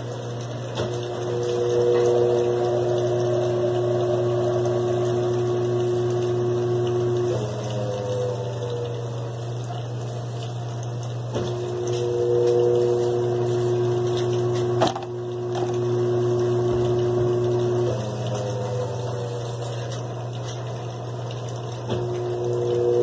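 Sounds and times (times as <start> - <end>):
washing machine motor hum: 0.0 - 23.0
high-pitched whine: 0.8 - 9.2, 11.4 - 19.6, 21.9 - 23.0
washing machine knock: 14.7 - 15.8.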